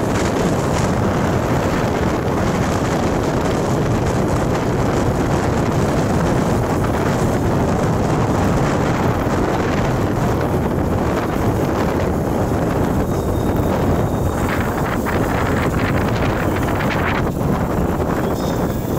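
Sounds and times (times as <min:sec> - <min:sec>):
road noise: 0:00.0 - 0:18.9
wind rushing over microphone: 0:00.0 - 0:18.9
motorcycle engine: 0:04.9 - 0:18.9.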